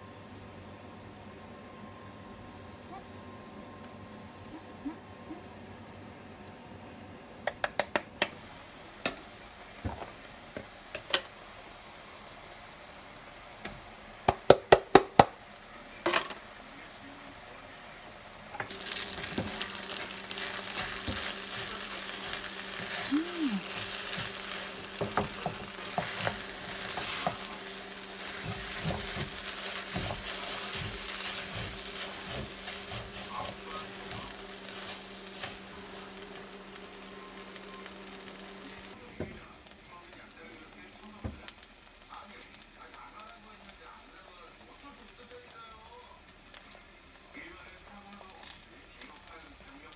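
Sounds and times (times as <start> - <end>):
sharp taps and clicks: 7.4 - 8.3
rice sizzling in a frying pan: 8.3 - 49.9
spatula stirring: 18.7 - 36.4.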